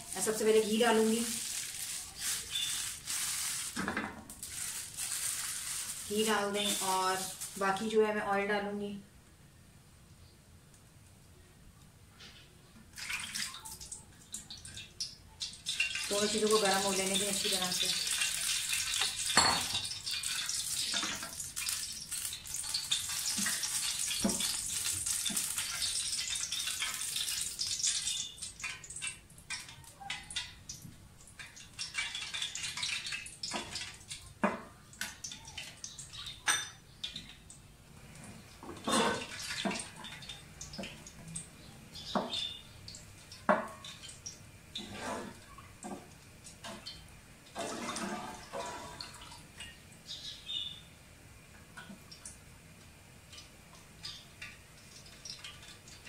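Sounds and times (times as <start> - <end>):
wooden spoon scraping a pot: 44.8 - 45.5.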